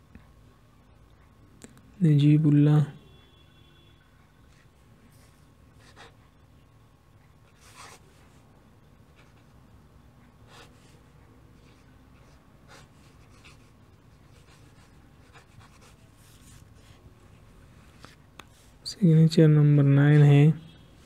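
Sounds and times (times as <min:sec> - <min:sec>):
low steady hum: 0:00.0 - 0:21.0
pen nib scratching on paper: 0:05.8 - 0:06.3, 0:07.5 - 0:08.2, 0:11.6 - 0:17.0.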